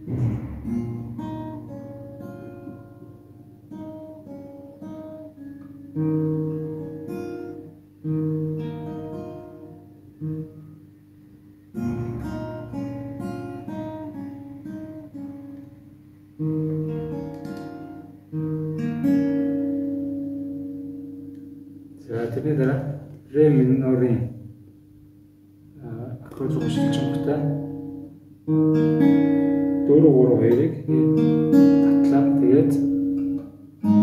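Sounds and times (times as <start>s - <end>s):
fingerstyle acoustic guitar: 0.0s - 23.3s, 26.2s - 34.0s.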